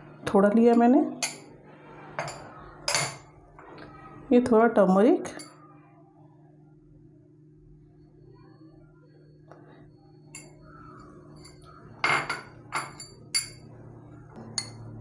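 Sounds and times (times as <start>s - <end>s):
spoon clinking glass bowls: 10.3s - 13.7s, 14.5s - 15.0s.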